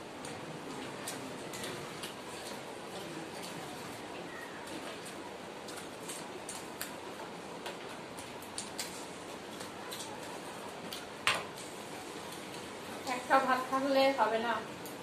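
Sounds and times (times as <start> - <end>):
eating clicks and smacks: 4.6 - 11.1.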